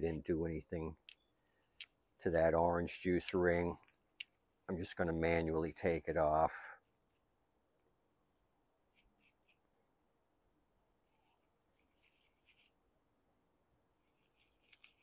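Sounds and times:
small brush scrubbing: 0.0 - 7.3, 8.9 - 9.6, 11.0 - 12.8, 13.9 - 15.0.

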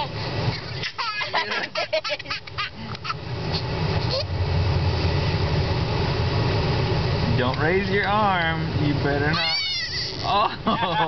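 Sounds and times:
car hum: 0.0 - 11.0
toddler laughing: 0.6 - 3.2, 9.4 - 11.0
toddler squealing: 4.0 - 4.3, 9.3 - 10.5.

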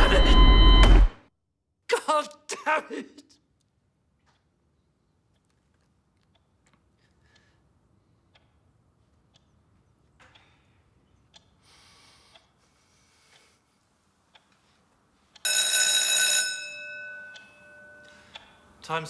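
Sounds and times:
faint ticks and clicks: 3.6 - 11.6, 12.3 - 12.6.

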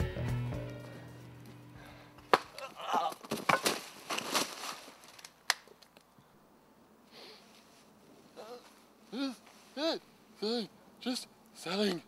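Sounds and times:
music: 0.0 - 1.9
sharp wooden cracks and snaps: 2.3 - 6.1.

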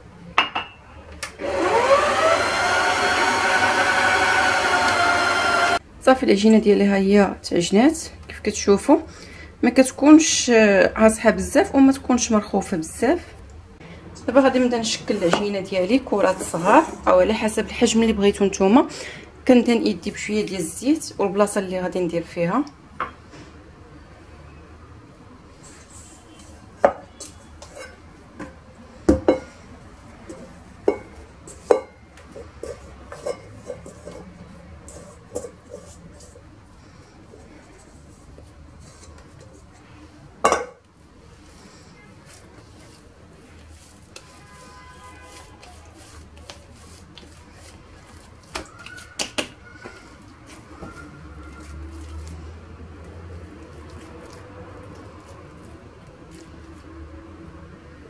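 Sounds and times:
metal bowl knocking on countertop: 0.4 - 0.8
sticky dough handling: 41.2 - 57.4
dough slaps: 48.1 - 50.0.

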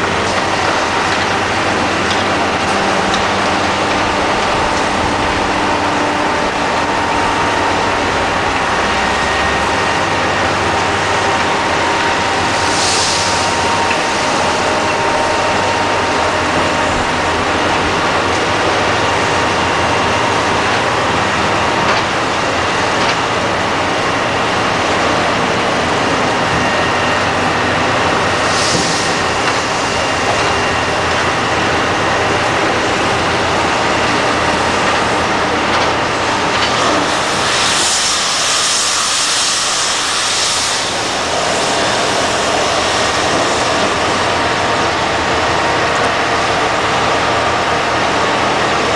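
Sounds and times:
excavator engine and hydraulics: 0.0 - 48.9
hydraulic hiss bursts: 12.4 - 14.6, 28.4 - 30.0, 36.8 - 43.8.

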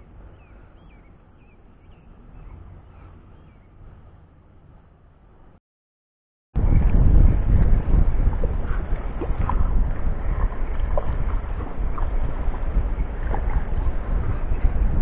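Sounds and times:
wind buffeting microphone: 6.6 - 15.0.

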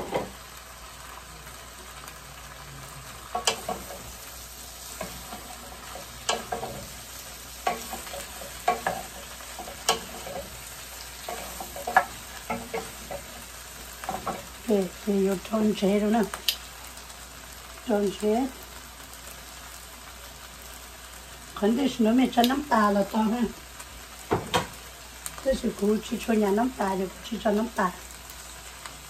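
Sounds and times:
vegetables sizzling in a frying pan: 0.0 - 29.0
wooden spatula scraping a pan: 3.3 - 14.7.

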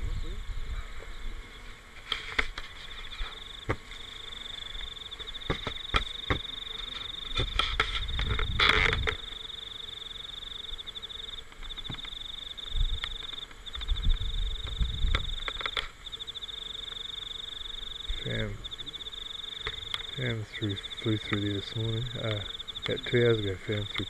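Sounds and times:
insects chirring: 0.0 - 24.0
rumbling thumps on microphone: 7.3 - 9.2, 13.7 - 15.8.

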